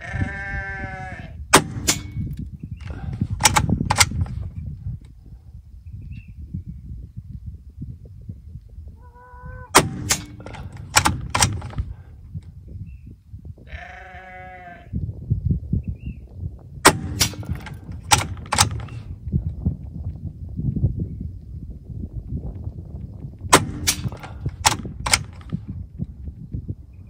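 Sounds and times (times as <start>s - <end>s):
farm animal bleating: 0.0s - 1.4s, 9.0s - 9.7s, 13.6s - 15.0s
air rifle shots: 1.5s - 4.4s, 9.7s - 12.1s, 16.8s - 19.1s, 23.5s - 25.6s
rifle action clicks: 1.9s - 4.4s, 9.8s - 11.9s, 16.9s - 19.1s, 23.5s - 25.6s.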